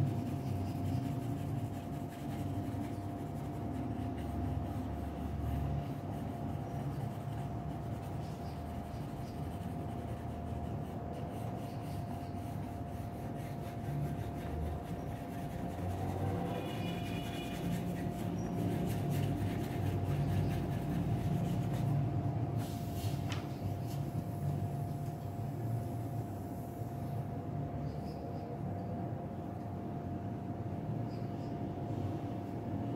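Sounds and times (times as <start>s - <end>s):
pencil scratching on paper: 0.0s - 22.2s
faint hum: 0.0s - 32.9s.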